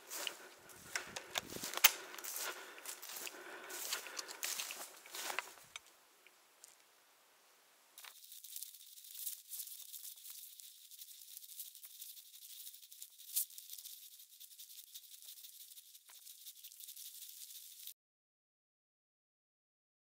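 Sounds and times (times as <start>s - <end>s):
brush and leaves rustling: 0.0s - 6.0s, 8.0s - 17.9s
twig snapping: 0.9s - 2.5s.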